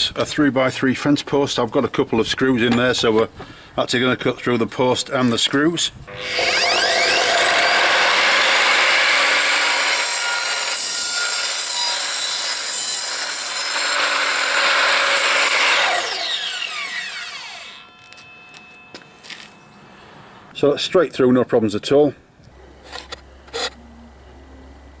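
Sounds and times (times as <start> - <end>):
mitre saw cutting wood: 6.1 - 18.2, 22.8 - 23.8
saw blade winding down: 6.1 - 18.9.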